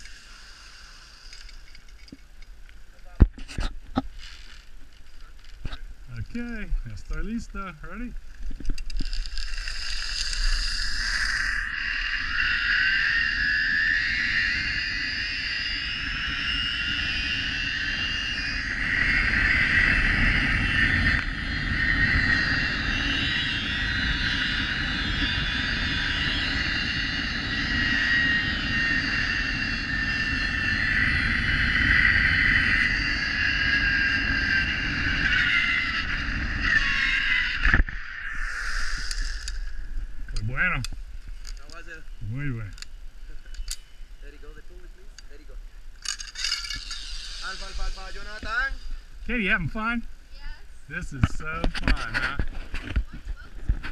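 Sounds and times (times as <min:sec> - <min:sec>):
zip-line pulleys whining on cable: 0:00.0 - 0:02.1, 0:08.7 - 0:40.2, 0:46.0 - 0:49.1
wind rushing on microphone: 0:05.7 - 0:45.9, 0:46.7 - 0:53.9.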